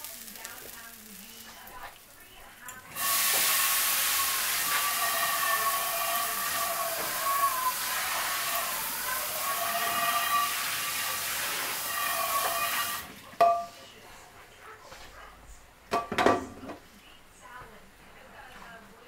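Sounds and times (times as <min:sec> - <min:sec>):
hissing sizzle with whistling tones: 0:00.0 - 0:13.1.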